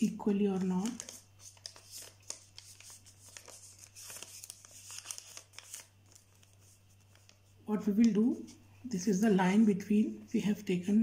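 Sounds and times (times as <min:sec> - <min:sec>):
paper rustling and crinkling: 0:00.5 - 0:08.6.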